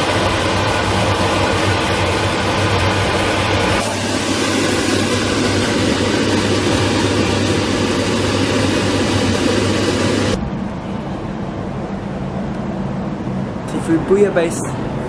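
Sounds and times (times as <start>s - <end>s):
low hum: 0.0s - 15.0s
mechanical rushing noise: 0.0s - 15.0s.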